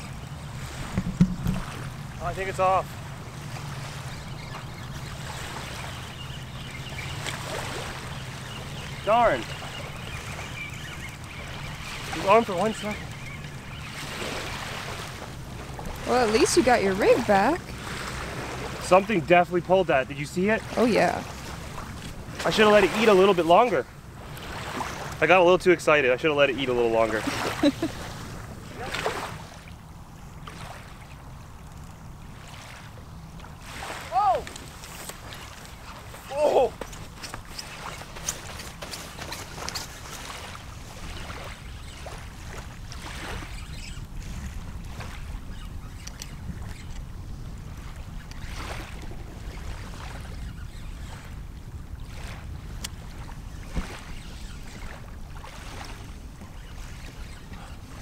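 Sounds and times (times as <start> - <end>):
wind rumble on microphone: 0.0 - 19.0, 27.2 - 58.0
small waves washing ashore: 0.0 - 58.0
thump: 0.9 - 1.6.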